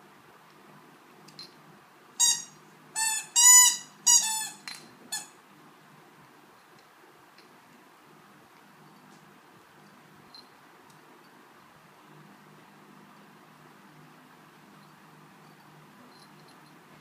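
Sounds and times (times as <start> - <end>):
squeaky toy squeaks: 2.2 - 5.3.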